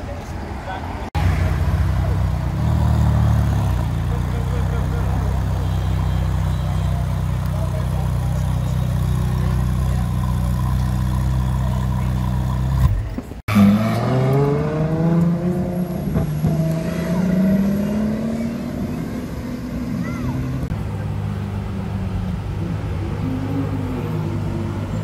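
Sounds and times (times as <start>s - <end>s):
car engine idling: 3.4s - 13.2s
car accelerating: 6.9s - 25.0s.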